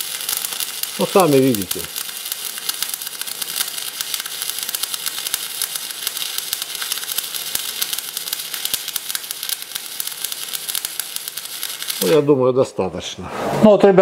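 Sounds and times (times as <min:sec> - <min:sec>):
welding arc crackling and hissing: 0:00.0 - 0:12.8.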